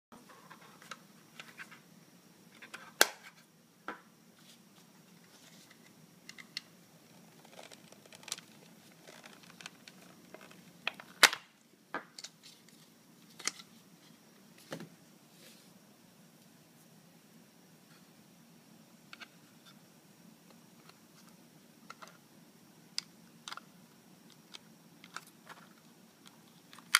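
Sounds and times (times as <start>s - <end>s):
loud plastic snaps: 10.9s - 11.5s.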